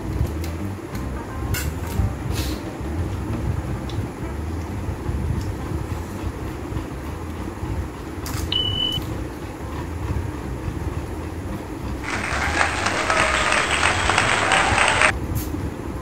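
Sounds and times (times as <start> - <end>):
steady low rumble: 0.0 - 13.0
short electronic beep: 8.5 - 9.0
applause: 12.0 - 15.1.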